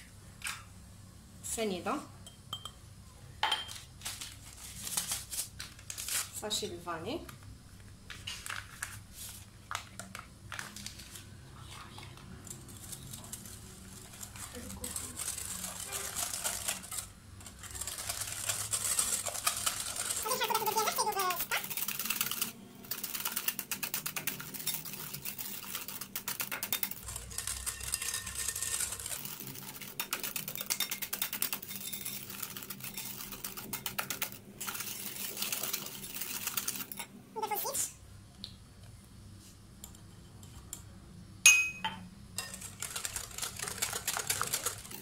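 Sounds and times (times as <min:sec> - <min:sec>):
whisk clattering in glass bowl: 0:14.8 - 0:37.0, 0:42.4 - 0:45.0.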